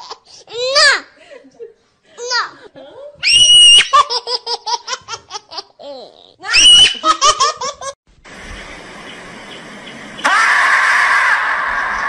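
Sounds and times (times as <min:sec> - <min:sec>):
high-pitched laughter: 0:06.6 - 0:08.0
steady hiss: 0:08.1 - 0:10.3.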